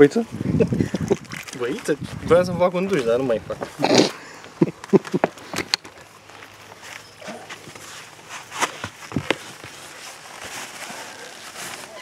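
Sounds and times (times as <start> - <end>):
footsteps: 4.4 - 12.0.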